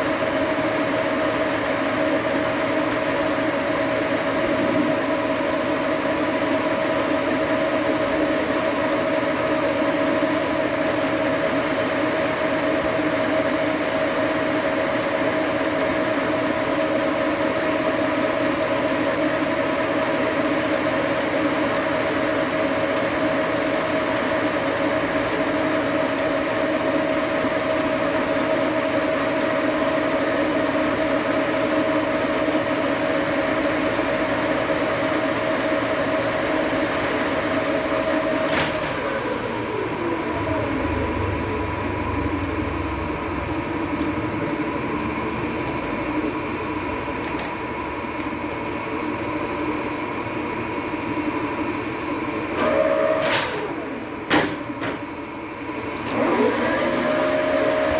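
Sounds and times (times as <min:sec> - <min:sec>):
lathe metal-cutting screech: 0:00.0 - 0:04.8, 0:10.8 - 0:16.5, 0:20.5 - 0:26.8, 0:32.9 - 0:38.0
lathe motor and gearing: 0:00.0 - 0:05.6, 0:06.4 - 0:19.0, 0:19.6 - 0:29.6, 0:31.4 - 0:49.6, 0:55.7 - 0:57.9.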